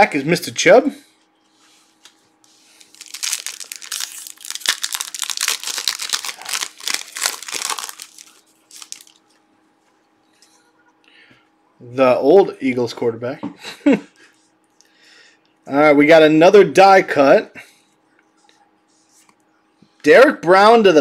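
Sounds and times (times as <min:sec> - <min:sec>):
foil wrapper crinkling: 0:02.0 - 0:09.3.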